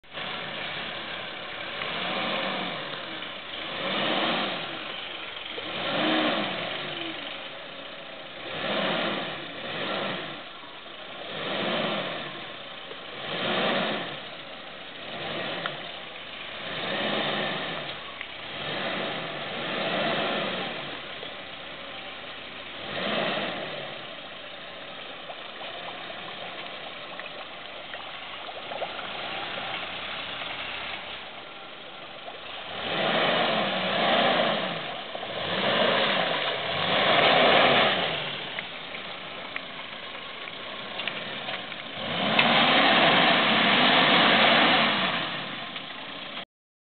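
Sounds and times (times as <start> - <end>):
off-road vehicle engine revving: 0.0 - 46.4.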